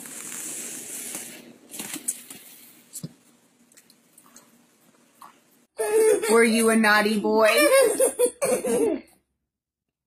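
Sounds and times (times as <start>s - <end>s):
rustling handling noise: 0.0s - 3.3s.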